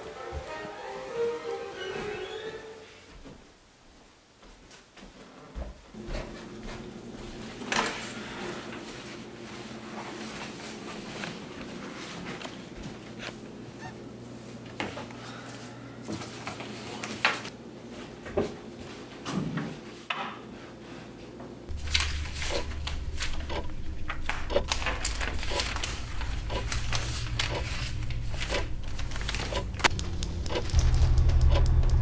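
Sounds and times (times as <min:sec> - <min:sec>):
paper rustling and shuffling: 0:07.6 - 0:13.4, 0:16.1 - 0:18.1, 0:21.7 - 0:32.0
low hum: 0:21.7 - 0:32.0.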